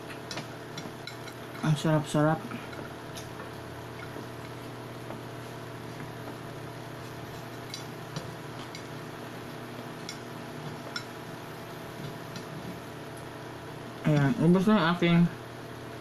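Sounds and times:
clicks and taps of eating: 0.0s - 1.6s
steady low hum: 0.0s - 16.0s.

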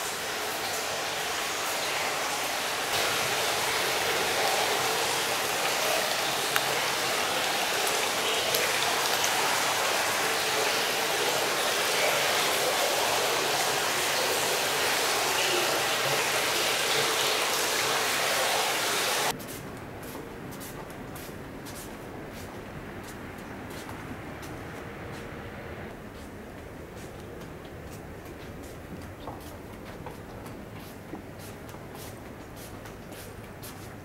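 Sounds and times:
rushing water: 0.0s - 19.4s, 27.7s - 34.0s.

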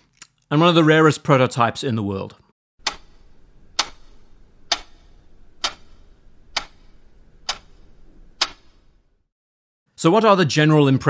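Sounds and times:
clock ticking: 2.8s - 7.8s.

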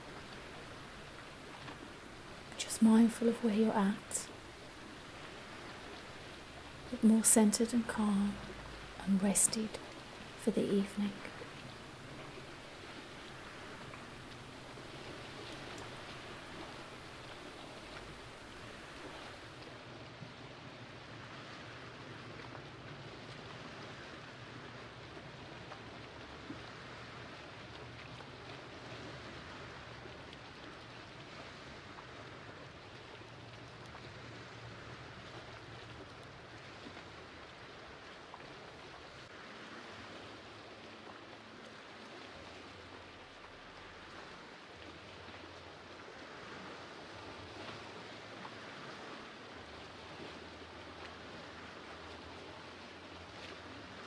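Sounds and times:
faint low rumble: 0.0s - 20.9s
small waves lapping on rocks: 0.0s - 54.0s.

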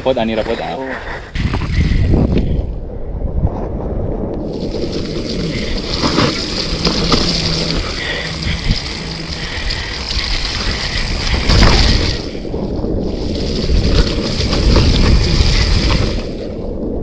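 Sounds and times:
wind rushing over microphone: 0.0s - 17.0s
tyre rumble: 4.4s - 16.9s
bike rattles and knocks: 4.5s - 12.4s, 13.0s - 16.5s.

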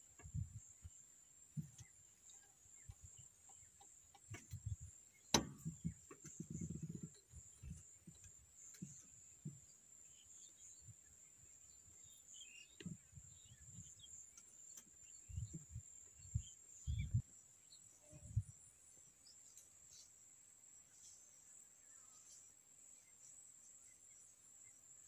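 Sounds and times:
insects droning: 0.0s - 25.0s
bird chirps: 1.6s - 20.2s.

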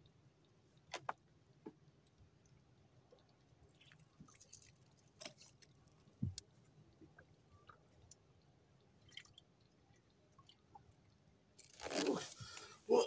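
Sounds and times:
faint clicks and knocks: 0.8s - 3.4s, 5.2s - 8.2s.

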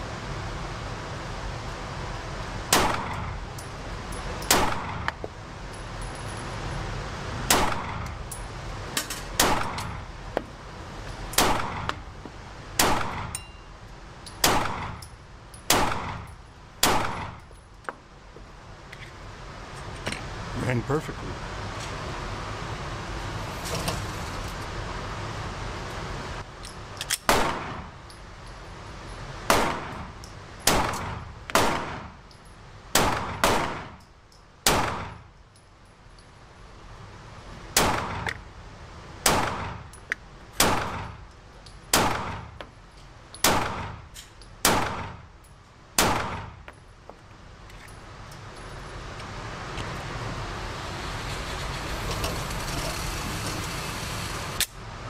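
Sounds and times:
pistol shots echoing: 11.4s - 11.9s, 14.4s - 15.0s, 15.7s - 16.2s, 16.8s - 17.3s, 30.7s - 32.1s, 33.0s - 34.0s, 34.6s - 35.2s, 44.6s - 45.2s, 46.0s - 46.5s.

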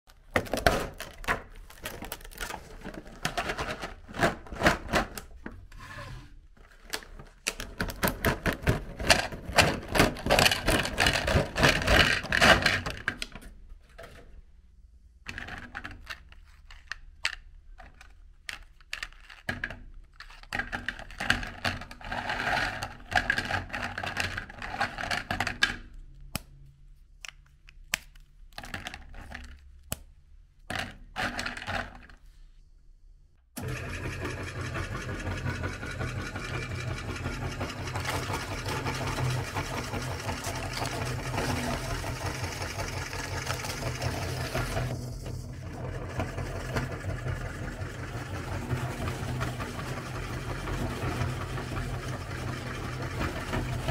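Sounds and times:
plastic tray crinkling: 0.2s - 5.6s.

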